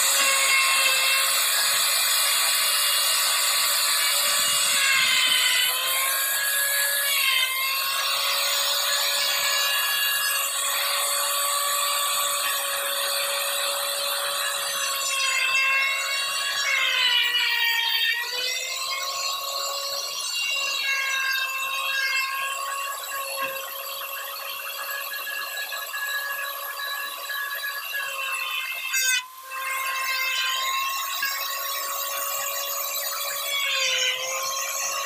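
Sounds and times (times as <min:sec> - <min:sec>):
router bit rasping in wood: 0:00.0 - 0:24.1
wood router whining: 0:00.0 - 0:35.0.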